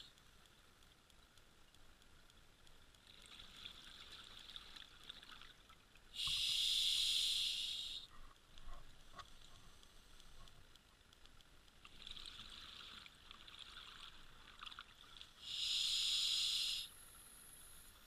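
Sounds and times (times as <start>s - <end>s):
diver breathing through regulator: 6.2s - 8.0s, 15.4s - 17.0s.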